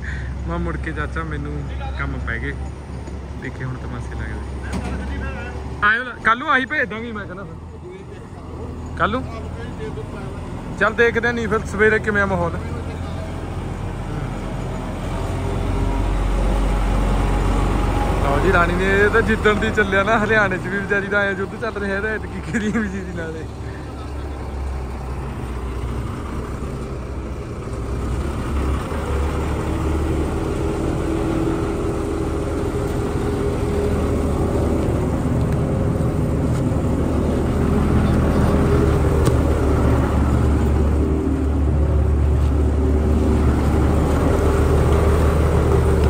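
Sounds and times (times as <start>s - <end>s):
diesel farm machinery running: 0.0s - 46.0s.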